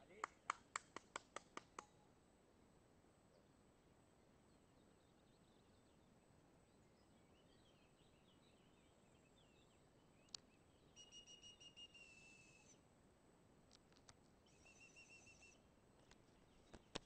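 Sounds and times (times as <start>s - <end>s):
small birds chirping: 4.4s - 12.8s, 14.4s - 17.0s
high whistled bird notes: 7.3s - 12.8s, 14.4s - 15.6s.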